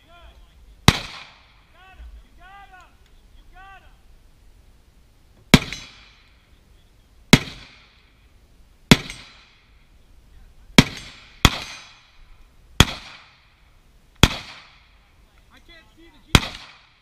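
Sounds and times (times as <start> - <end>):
carbine shots with echo: 0.8 - 1.6, 5.5 - 6.4, 7.3 - 8.1, 8.9 - 9.7, 10.8 - 12.2, 12.8 - 13.5, 14.2 - 15.0, 16.3 - 17.0.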